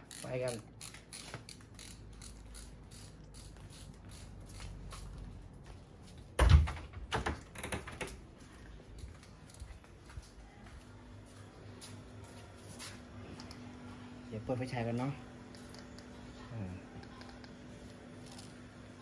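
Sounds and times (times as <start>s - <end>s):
footsteps: 3.6s - 6.4s, 8.2s - 14.1s.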